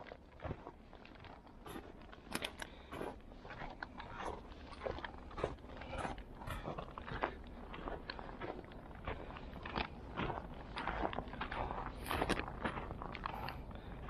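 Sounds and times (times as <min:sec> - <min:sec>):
footsteps crunching in snow: 0:00.0 - 0:14.0.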